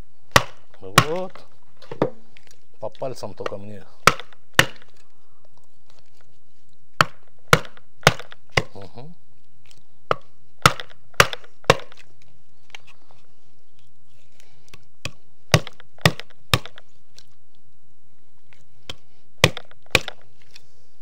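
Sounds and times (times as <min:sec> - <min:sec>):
knife chopping bones on a board: 0:00.3 - 0:01.3, 0:03.4 - 0:04.9, 0:07.0 - 0:08.8, 0:10.1 - 0:12.0, 0:15.5 - 0:16.8, 0:19.4 - 0:20.2.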